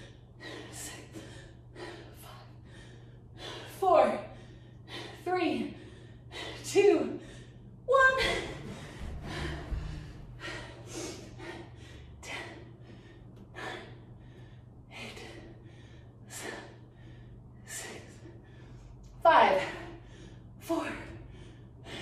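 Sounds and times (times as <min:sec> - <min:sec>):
woman breathing hard: 0:00.0 - 0:22.0.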